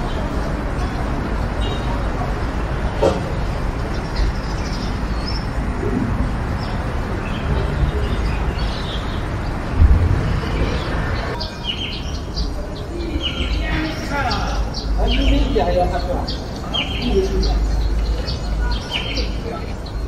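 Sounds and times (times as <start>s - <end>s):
birds chirping: 0.0s - 20.0s.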